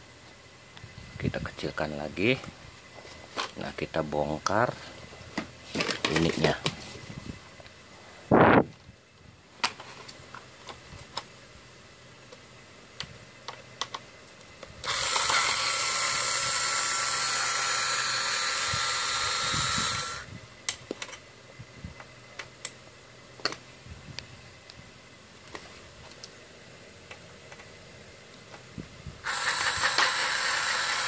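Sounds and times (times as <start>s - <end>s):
electric screwdriver whirring: 14.8s - 20.3s, 29.2s - 31.0s.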